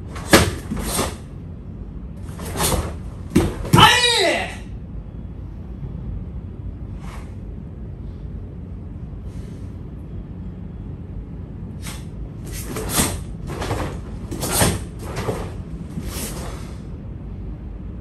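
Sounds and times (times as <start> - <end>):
low background hum: 0.0 - 18.0.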